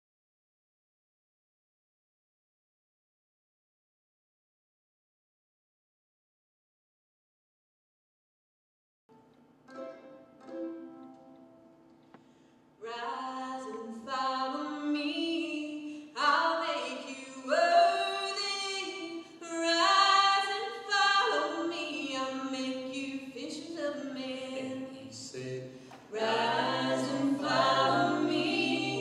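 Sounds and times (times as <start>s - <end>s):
woman singing lead: 12.8s - 25.1s, 26.1s - 29.0s
voices singing close harmony: 26.1s - 29.0s.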